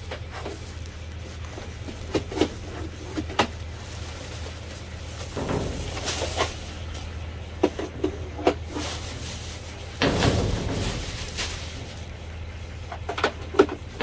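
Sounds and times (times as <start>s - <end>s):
plastic bags rustling: 0.0s - 14.0s
steady low hum: 0.0s - 14.0s
sharp knocks: 5.3s - 8.6s.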